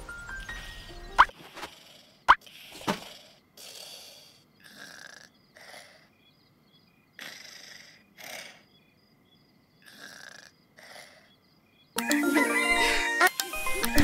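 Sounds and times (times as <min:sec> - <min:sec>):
cartoon cat snoring: 0:01.3 - 0:06.1, 0:07.2 - 0:08.6, 0:09.8 - 0:11.3.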